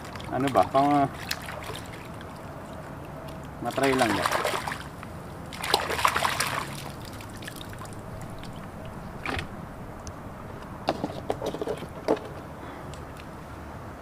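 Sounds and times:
shallow water splashing: 0:00.0 - 0:10.0
water trickling: 0:00.0 - 0:10.6.

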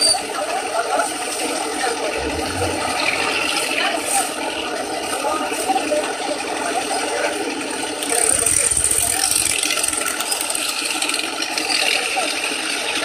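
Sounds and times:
water noise: 0:01.8 - 0:05.6
motorboat engine running: 0:02.0 - 0:04.1.

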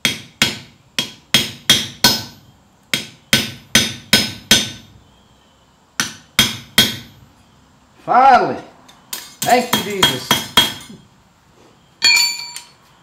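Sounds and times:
hammer striking metal punch: 0:00.0 - 0:04.9, 0:06.0 - 0:07.2, 0:09.1 - 0:11.0.

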